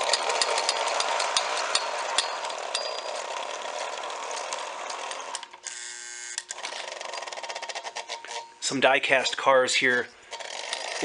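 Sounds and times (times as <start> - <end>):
wheels clicking on rails: 0.0 - 5.6, 6.5 - 11.0
toy train motor whining: 0.0 - 9.6, 10.2 - 11.0.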